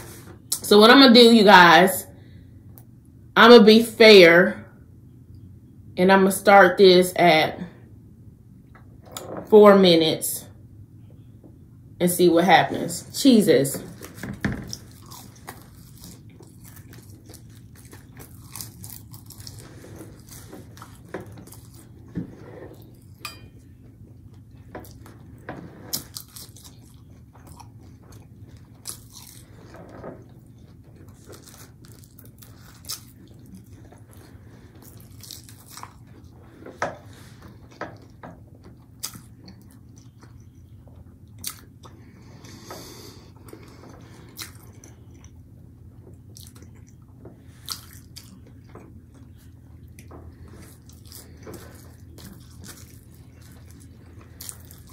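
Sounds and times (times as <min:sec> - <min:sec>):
steady low hum: 0:00.0 - 0:54.9
chewing crunchy food: 0:13.8 - 0:54.9.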